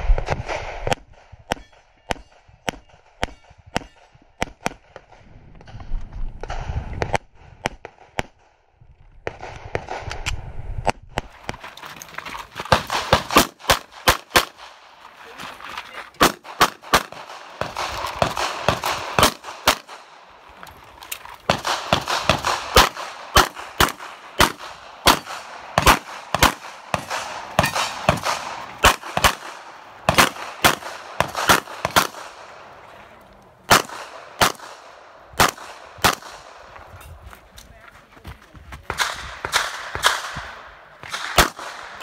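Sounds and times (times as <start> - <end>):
rapid handgun shots: 12.7 - 15.0, 16.2 - 20.3, 21.5 - 32.7, 33.7 - 36.8, 38.9 - 42.0.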